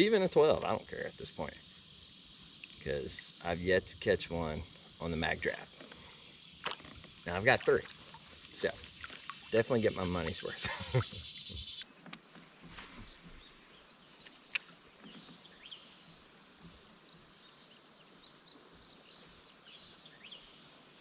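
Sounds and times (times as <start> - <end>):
birds chirping: 0.0 - 16.1
brief hiss: 9.6 - 11.9, 12.6 - 13.7.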